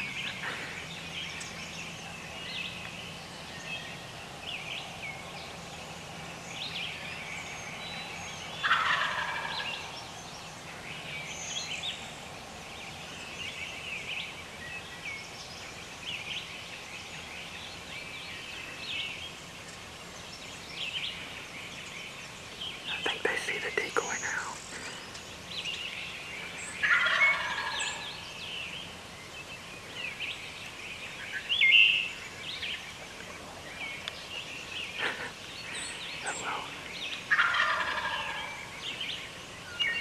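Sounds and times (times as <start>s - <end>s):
turkey gobbling: 8.6s - 9.8s, 26.8s - 28.2s, 37.3s - 38.6s.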